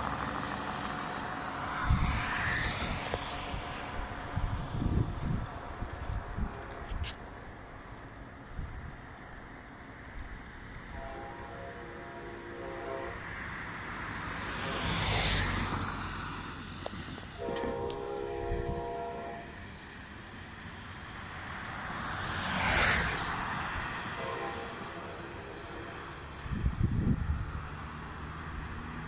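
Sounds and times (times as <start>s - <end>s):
road vehicles passing: 0.0s - 29.0s
train horn blasts: 6.4s - 7.1s, 10.9s - 13.4s, 17.4s - 19.7s, 24.1s - 26.1s.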